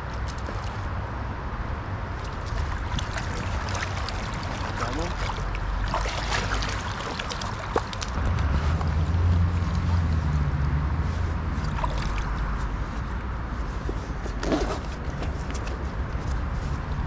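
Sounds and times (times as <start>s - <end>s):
creek water running: 2.1s - 13.3s
water splash: 2.2s - 10.1s, 11.5s - 12.5s.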